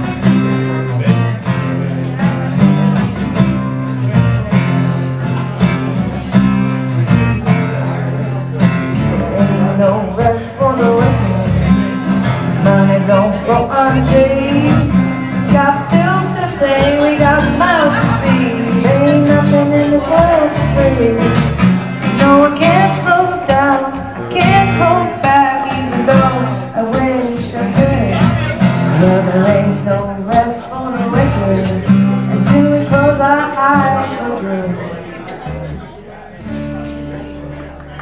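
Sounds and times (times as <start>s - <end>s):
strummed acoustic guitar: 0.0s - 38.0s
person singing: 9.0s - 35.7s.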